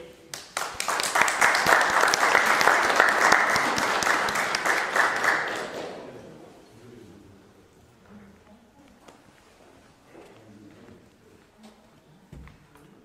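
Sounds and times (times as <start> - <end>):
audience applause: 0.4 - 6.4.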